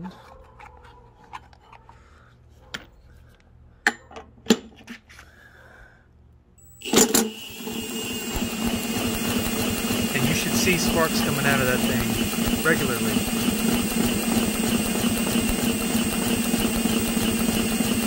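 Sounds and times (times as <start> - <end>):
impact driver spinning engine: 6.6 - 18.0.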